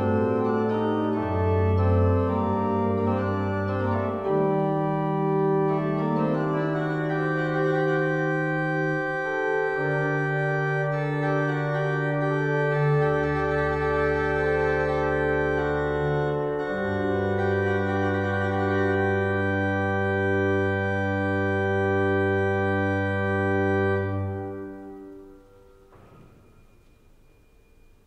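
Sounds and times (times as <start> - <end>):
pipe organ playing: 0.0 - 28.0.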